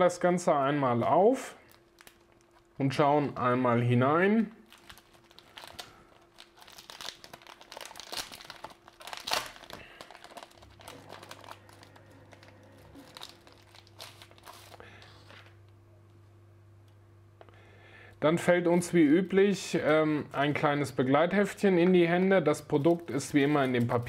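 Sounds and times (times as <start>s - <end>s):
packaging pouch crinkling: 1.6s - 2.8s, 4.6s - 15.6s.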